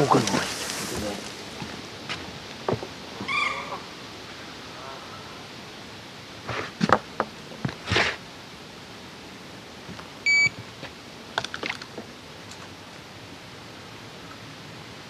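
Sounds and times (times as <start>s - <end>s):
bite alarm beep: 10.3s - 10.5s.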